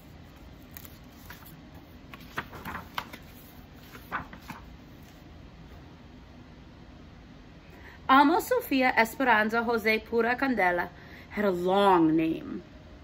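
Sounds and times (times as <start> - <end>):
book pages turning: 0.2 - 5.3.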